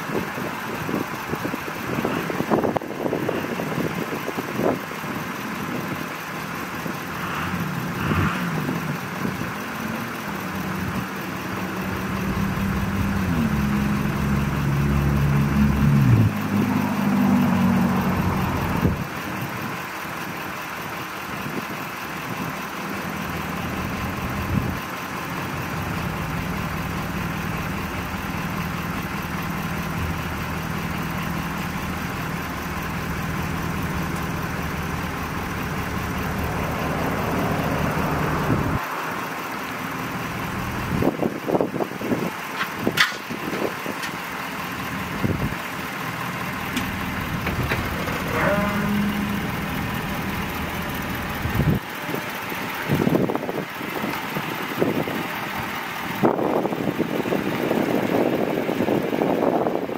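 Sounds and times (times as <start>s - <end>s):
truck engine idling: 0.0s - 59.9s.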